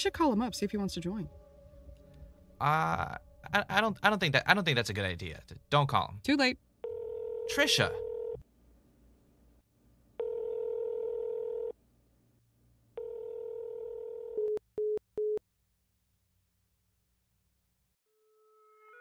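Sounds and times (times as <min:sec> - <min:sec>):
telephone ringback tone: 0:06.8 - 0:08.4, 0:10.2 - 0:11.7, 0:13.0 - 0:15.4.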